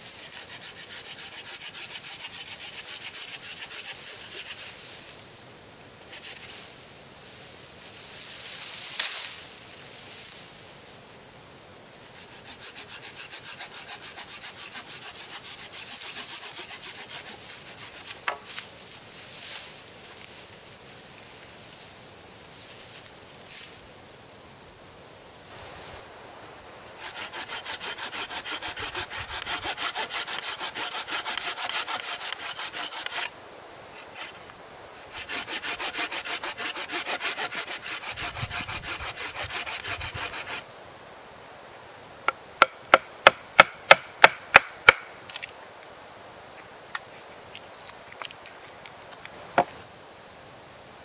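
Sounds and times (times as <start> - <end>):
saw cutting wood: 0.0 - 4.7, 12.2 - 18.4, 27.0 - 33.3, 34.0 - 34.4, 35.0 - 40.6.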